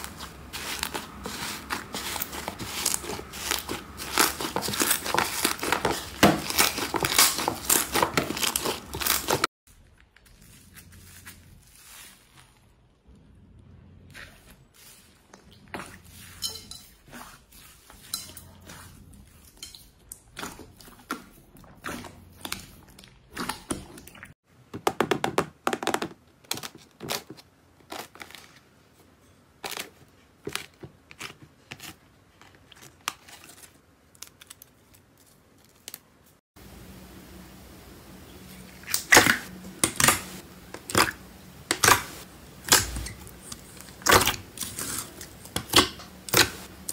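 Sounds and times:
hands squishing foam slime: 0.0 - 12.8
crunchy slime crust crackling: 0.0 - 13.2.

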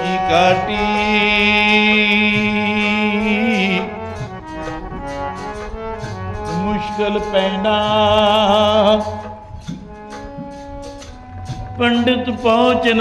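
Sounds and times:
percussion strikes: 0.0 - 13.0
sustained instrumental melody: 0.0 - 13.0.

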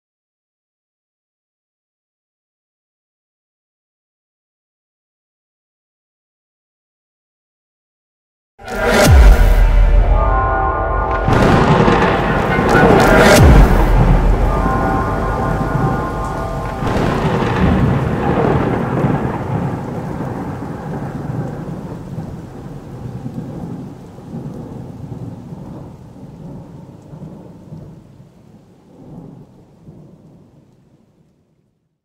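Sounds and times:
thunder rumbling: 8.6 - 30.8
rain: 11.1 - 32.0.

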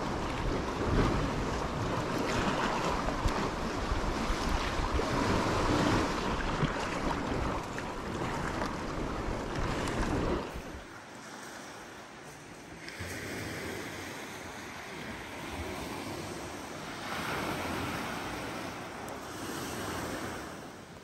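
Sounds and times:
wind buffeting the microphone: 0.0 - 10.9
sea waves: 0.0 - 21.0
small waves on a pebble beach: 0.0 - 21.0.

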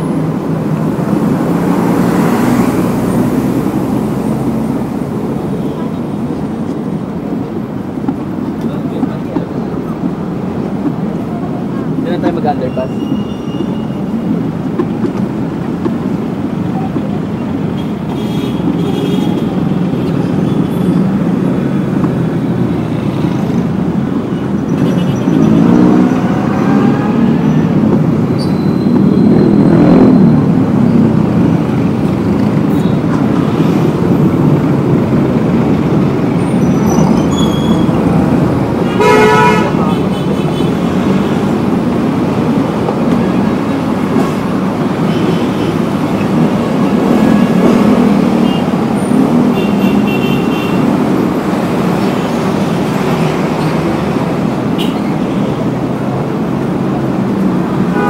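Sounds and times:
traffic passing: 0.0 - 58.0
car horn honking: 38.8 - 40.8, 49.5 - 50.9.

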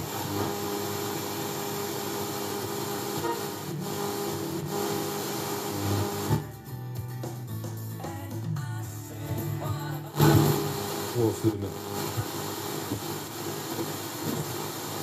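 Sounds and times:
wavering radio tones: 0.0 - 6.4, 10.1 - 15.0
radio static hiss: 0.0 - 6.6, 9.5 - 15.0.

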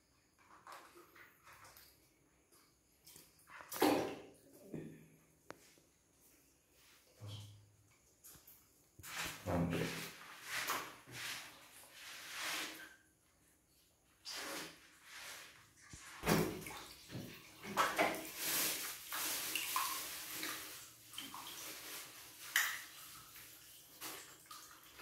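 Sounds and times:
water splashing in bucket: 3.0 - 4.7, 14.3 - 25.0.

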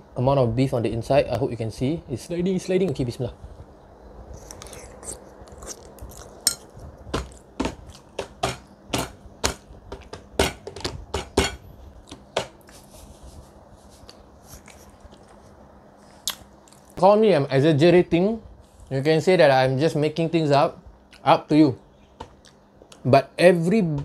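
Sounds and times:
mouth smacks while chewing: 4.4 - 8.1, 16.1 - 17.0.

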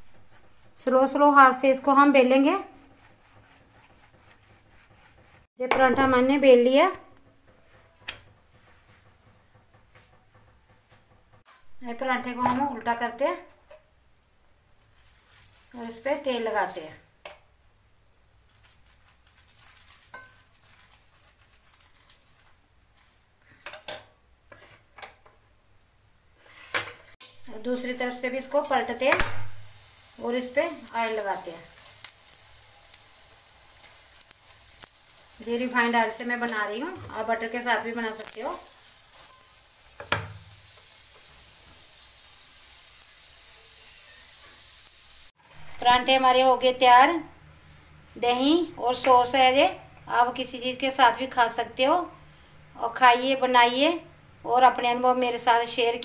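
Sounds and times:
flatbread sizzling in oil: 0.0 - 5.6, 14.8 - 17.1, 18.4 - 23.6, 26.4 - 45.8.

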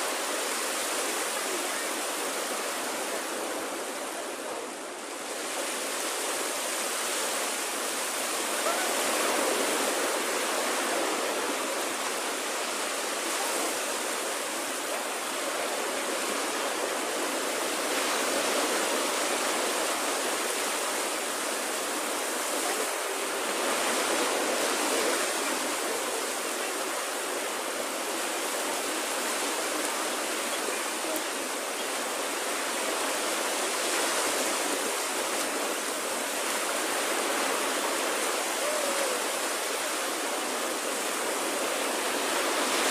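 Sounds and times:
small waves breaking on beach: 0.0 - 42.9.

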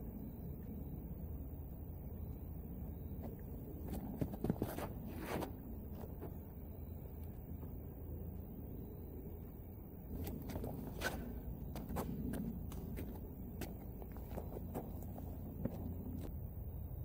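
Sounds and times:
low background rumble: 0.0 - 17.0
shoes scuffing on concrete: 3.3 - 6.4, 10.1 - 16.3.

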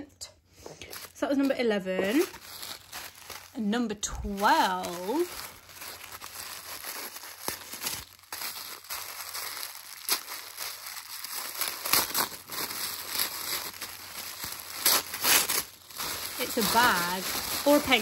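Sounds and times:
packaging crinkling and rustling: 0.7 - 18.0.

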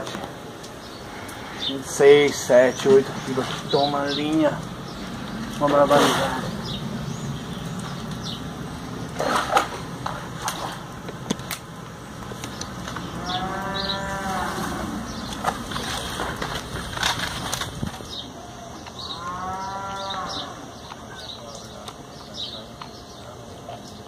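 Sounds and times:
cow mooing: 13.1 - 15.1, 19.1 - 20.7.

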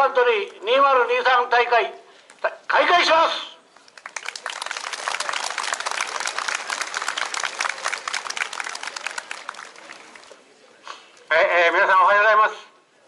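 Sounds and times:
crowd applauding: 3.8 - 10.6.

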